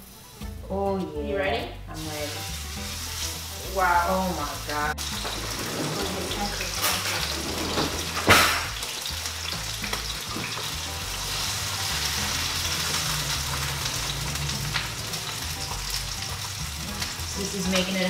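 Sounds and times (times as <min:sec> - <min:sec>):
steak sizzling in a frying pan: 0:02.0 - 0:18.0.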